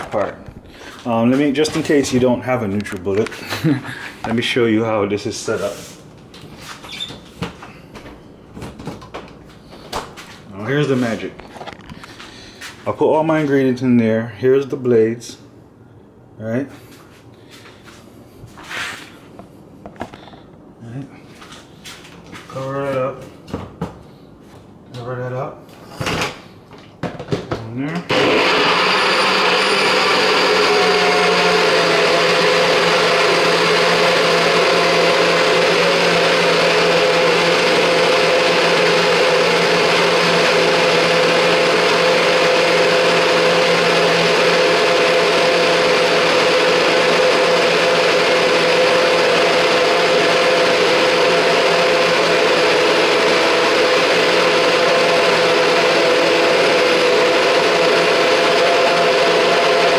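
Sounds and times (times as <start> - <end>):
blender motor running: 28.1 - 59.9.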